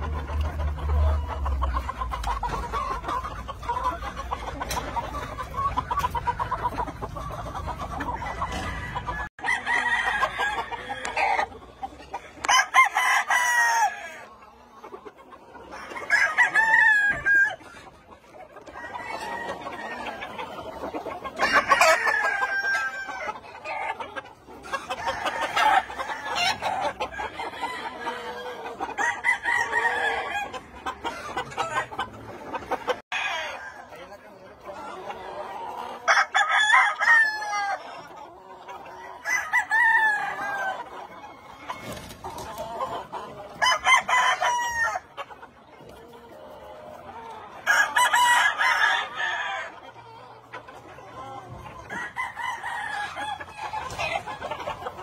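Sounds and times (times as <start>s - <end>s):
chickens clucking: 0.0s - 55.0s
roosters crowing: 7.9s - 14.4s, 15.6s - 17.8s, 18.6s - 34.1s, 34.9s - 45.2s, 47.0s - 50.1s, 51.2s - 55.0s.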